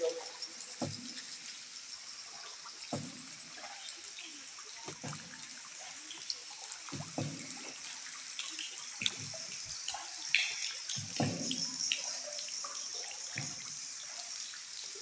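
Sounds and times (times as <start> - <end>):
water dripping: 0.0 - 15.0
paddle splashing through water: 4.8 - 5.9, 6.8 - 8.0, 10.4 - 11.8.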